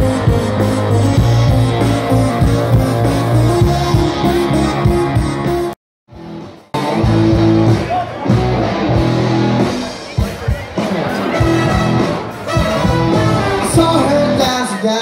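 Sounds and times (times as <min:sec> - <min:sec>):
live rock band playing: 0:00.0 - 0:15.0.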